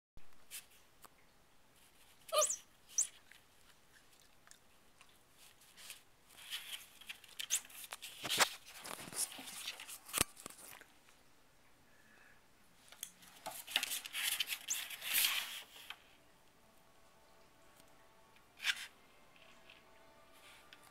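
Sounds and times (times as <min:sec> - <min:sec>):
puppy squeaks: 0:02.3 - 0:03.2.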